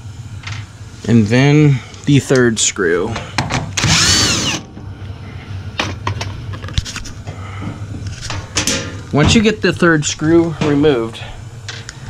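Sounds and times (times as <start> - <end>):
low steady hum: 0.0 - 12.0
power drill whine: 3.8 - 4.7.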